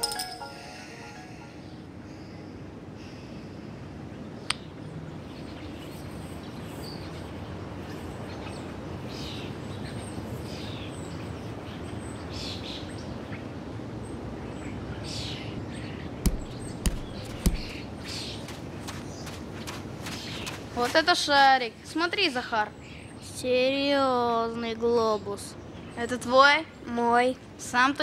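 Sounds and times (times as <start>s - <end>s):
outdoor background hiss: 0.0s - 28.0s
birds chirping: 15.0s - 23.3s
sharp taps: 16.2s - 17.8s.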